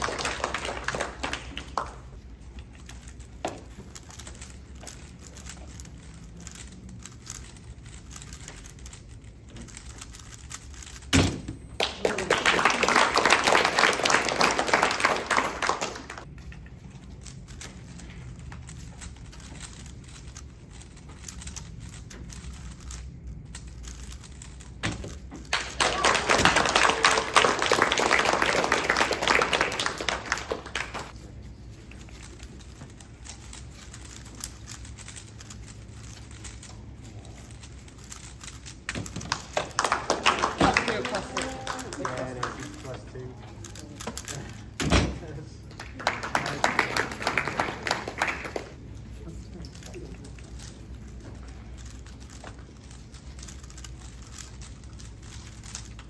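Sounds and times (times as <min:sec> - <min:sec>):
audience applause: 0:00.0 - 0:02.0, 0:11.8 - 0:16.2, 0:25.5 - 0:31.1, 0:39.6 - 0:42.5, 0:45.8 - 0:48.8
speedcubes clicking: 0:00.0 - 0:44.9, 0:45.6 - 0:56.0.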